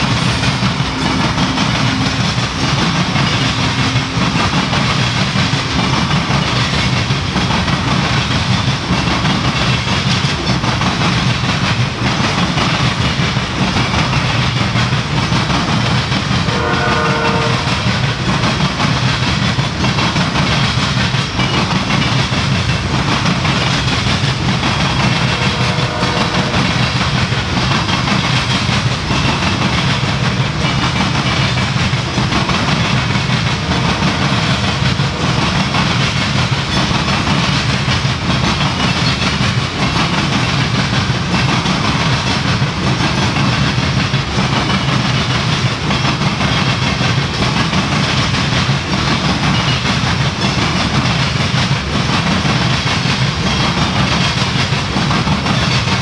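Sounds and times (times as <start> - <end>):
train wheels rumbling on rails: 0.0 - 56.0
train horn: 16.5 - 18.0, 25.1 - 27.0.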